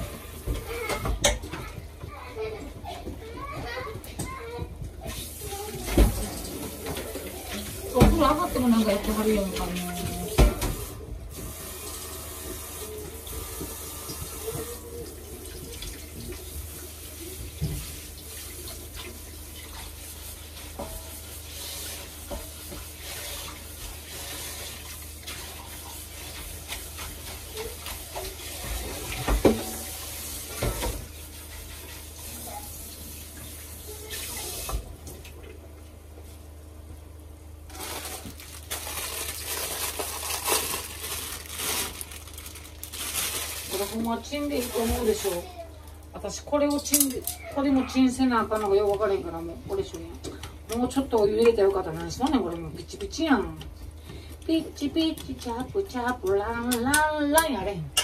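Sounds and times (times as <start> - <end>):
tap running into sink: 27.9 - 31.1.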